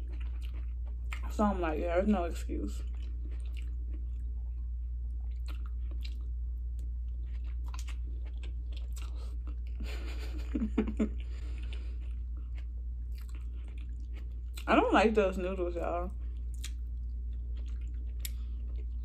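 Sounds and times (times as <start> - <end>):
mouth chewing clicks and smacks: 0.0 - 1.3, 2.9 - 4.3, 5.2 - 6.3, 7.2 - 9.8, 16.4 - 19.0
steady low hum: 0.0 - 19.0.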